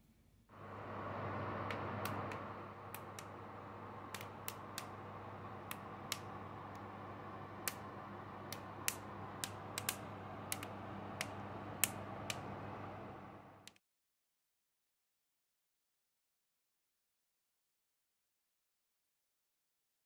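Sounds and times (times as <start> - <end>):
fan oven humming: 0.5 - 13.8
sharp ticks and clicks: 4.1 - 4.9, 8.5 - 12.4.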